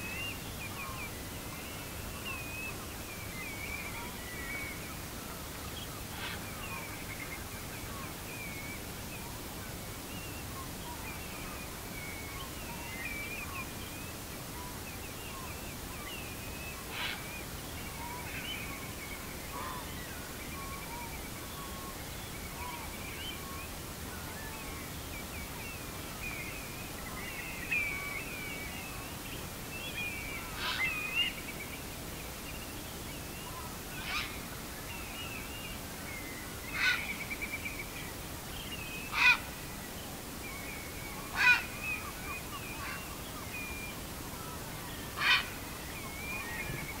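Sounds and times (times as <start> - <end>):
harsh heron call: 16.9 - 17.3, 30.6 - 30.9, 36.7 - 37.1, 39.1 - 39.6, 41.3 - 41.8, 45.1 - 45.6.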